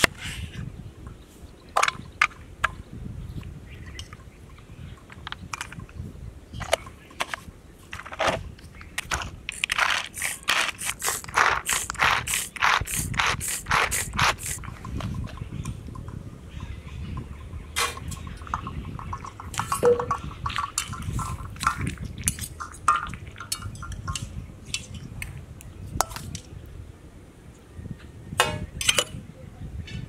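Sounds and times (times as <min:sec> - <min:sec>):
utensils clinking on metal pot: 0:17.8 - 0:25.1, 0:28.4 - 0:29.2.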